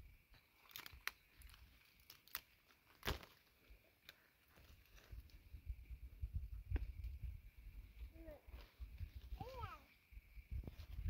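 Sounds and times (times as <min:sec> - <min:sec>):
faint sharp clicks and crackles: 0:00.3 - 0:03.4.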